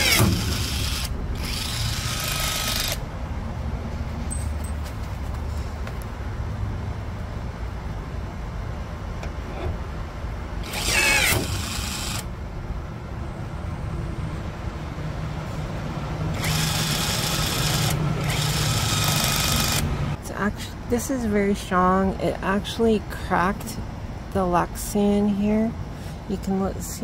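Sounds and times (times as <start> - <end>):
rivet tool motor whirring: 0.0 - 3.0, 10.6 - 12.3, 16.3 - 19.9.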